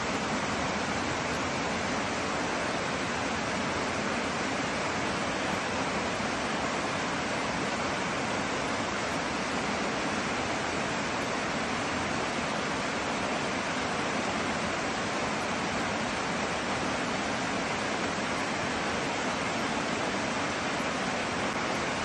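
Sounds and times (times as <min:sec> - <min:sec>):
creek rushing over rocks: 0:00.0 - 0:22.0.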